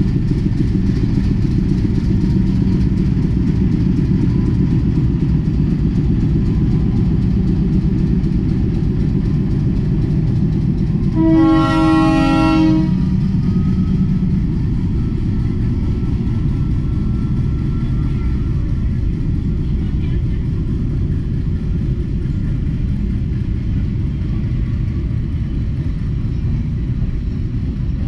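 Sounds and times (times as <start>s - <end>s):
diesel locomotive engine running: 0.0s - 28.0s
wheels rumbling on rails: 0.0s - 28.0s
locomotive horn: 11.0s - 13.2s.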